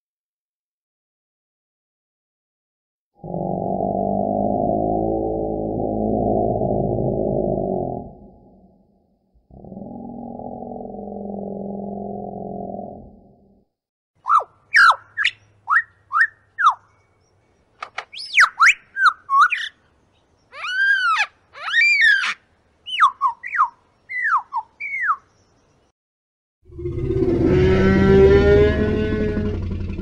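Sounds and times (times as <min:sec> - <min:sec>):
bird chirps: 0:14.2 - 0:25.9
rising and falling bird calls: 0:14.2 - 0:25.9.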